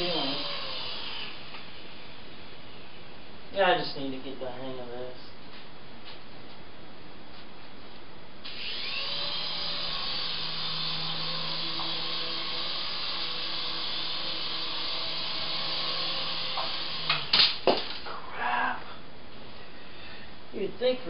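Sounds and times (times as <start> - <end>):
toy helicopter motors whirring: 0.0 - 1.5, 8.5 - 17.4.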